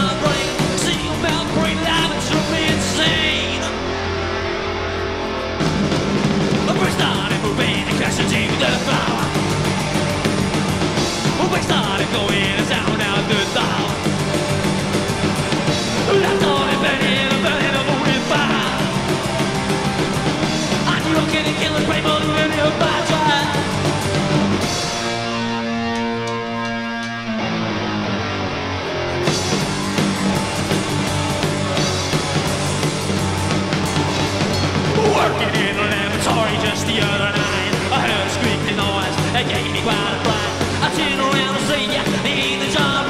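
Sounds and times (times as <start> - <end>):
person singing: 0.0 - 3.9, 6.6 - 9.5, 11.4 - 14.1, 16.0 - 19.4, 20.8 - 23.8, 34.9 - 43.0
electric guitar: 0.0 - 43.0.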